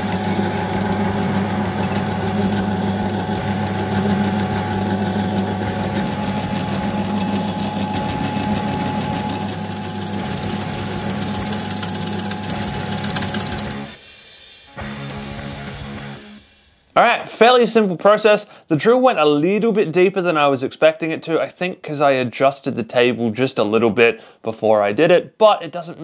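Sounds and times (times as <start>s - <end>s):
drill press motor hum: 6.3s - 13.8s
drill bit squealing in steel: 9.4s - 13.8s.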